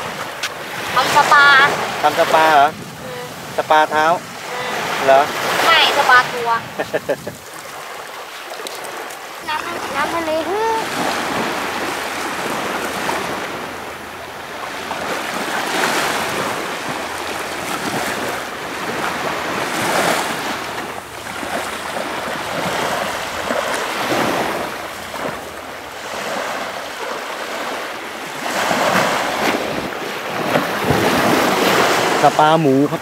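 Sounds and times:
small waves washing onto sand: 0.0s - 33.0s.

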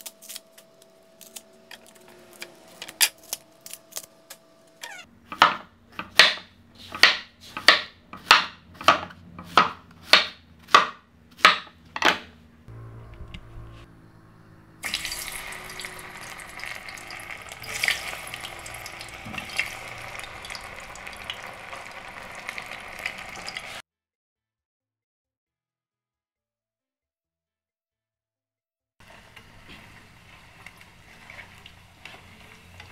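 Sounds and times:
knife chopping on wooden board: 5.3s - 12.3s
frying in hot oil: 14.8s - 23.8s, 29.0s - 32.9s.

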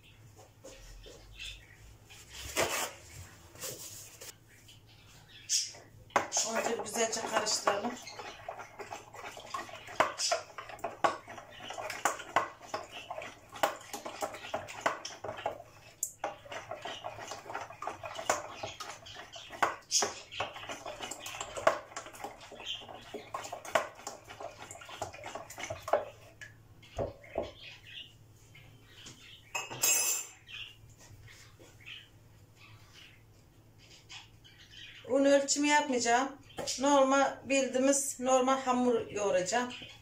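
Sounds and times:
whisking wet clicking in bowl: 5.8s - 26.6s.

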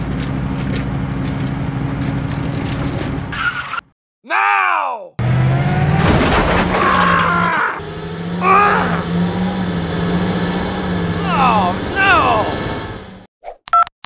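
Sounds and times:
tractor engine droning: 5.2s - 13.3s
high-pitched cartoon squeals: 6.6s - 7.8s, 8.4s - 9.1s.

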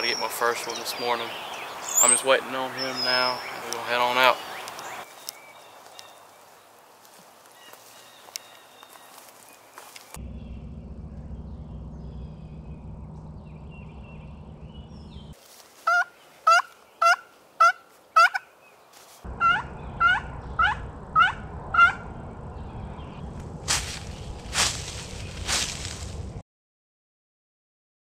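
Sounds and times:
turkey yelps: 15.9s - 18.5s, 19.4s - 22.0s.

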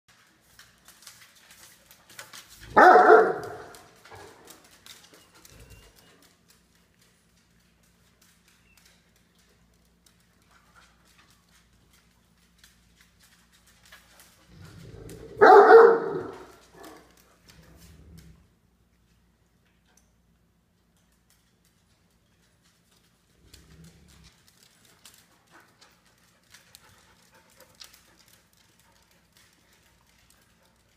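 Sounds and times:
dog claws ticking on tile: 0.1s - 18.4s, 19.6s - 30.9s
dog howling bark: 2.7s - 4.4s, 15.2s - 17.0s.

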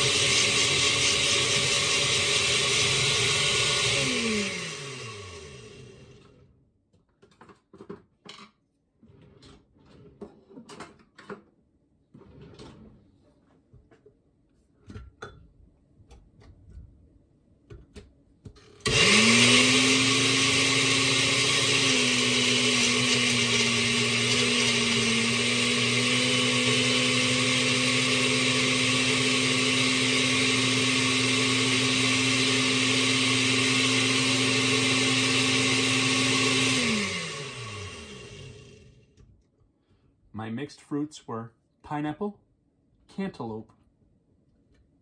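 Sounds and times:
blender motor winding down: 0.0s - 6.4s, 18.8s - 39.0s
blender running: 0.0s - 6.5s, 18.8s - 39.1s.

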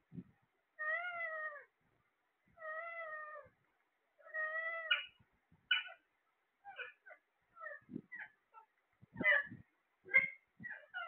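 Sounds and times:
parakeet calls: 4.2s - 6.0s, 6.6s - 11.0s
parakeet squawks: 4.3s - 6.0s, 6.6s - 11.0s.

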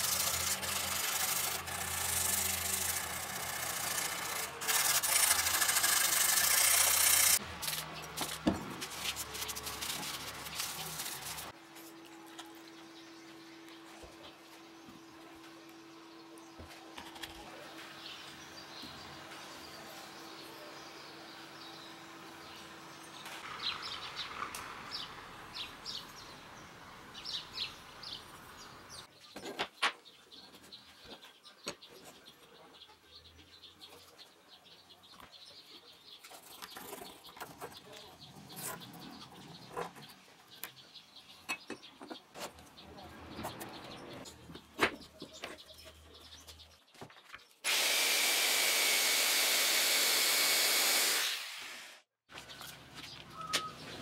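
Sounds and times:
angle grinder whining: 0.0s - 7.4s, 47.6s - 52.1s
birds chirping: 9.0s - 47.6s, 52.3s - 54.0s.

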